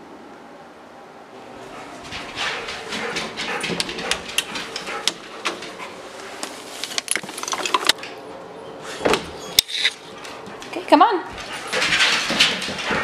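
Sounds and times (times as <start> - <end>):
dogs breathing: 1.4 - 6.4, 8.8 - 13.0
dogs scuffling: 1.4 - 8.2, 8.9 - 13.0.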